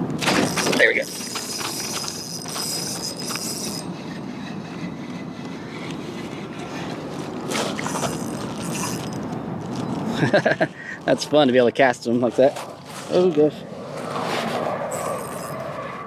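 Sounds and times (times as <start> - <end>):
wind: 0.0 - 16.0
fishing reel cranking: 0.2 - 4.0, 7.5 - 9.8, 14.9 - 15.6
water: 5.7 - 9.8.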